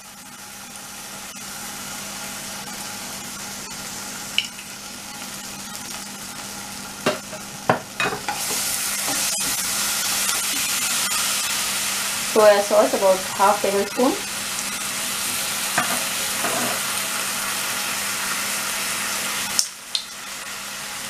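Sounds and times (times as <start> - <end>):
onions sizzling in oil: 0.0 - 21.0
spatula knocking on pan: 7.0 - 8.4.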